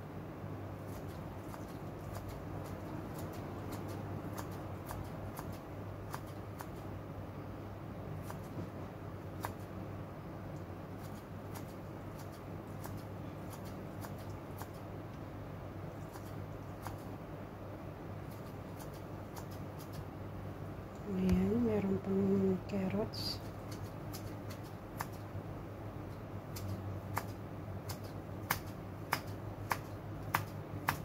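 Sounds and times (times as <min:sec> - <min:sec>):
steady low hum: 0:00.0 - 0:31.0
scissors snipping: 0:00.9 - 0:06.8, 0:09.4 - 0:09.7, 0:11.0 - 0:14.8, 0:16.0 - 0:17.1, 0:23.4 - 0:25.2, 0:26.5 - 0:31.0.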